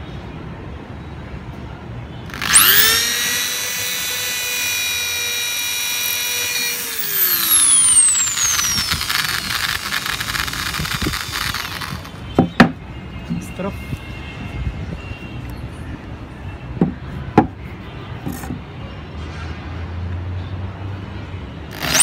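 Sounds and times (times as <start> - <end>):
electric drill whining: 2.3 - 12.2, 21.8 - 22.0.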